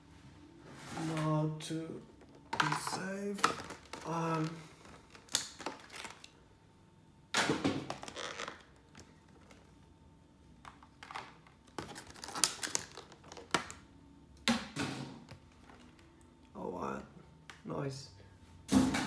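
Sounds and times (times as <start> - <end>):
plastic packaging crinkling: 3.3 - 6.4, 7.8 - 9.6, 10.7 - 13.8
cards clicking and rustling: 10.6 - 13.8.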